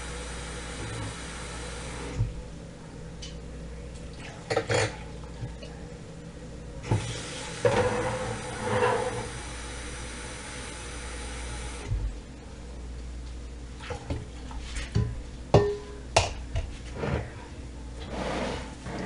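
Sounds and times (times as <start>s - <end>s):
kitchenware clattering: 4.5s - 5.0s, 14.9s - 16.4s
kitchen tap running: 6.8s - 11.9s.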